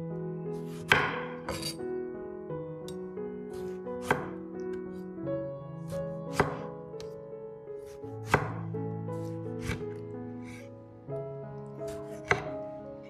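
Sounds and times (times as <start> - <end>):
soft background music: 0.0 - 13.0
knife slicing a tomato: 0.6 - 1.8, 3.5 - 4.4, 5.9 - 7.2, 7.8 - 8.6, 9.2 - 10.7, 11.9 - 12.6.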